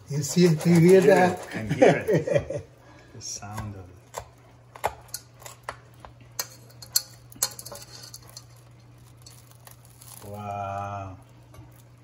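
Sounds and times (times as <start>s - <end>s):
metal utensil clinking in pot: 6.4s - 9.8s.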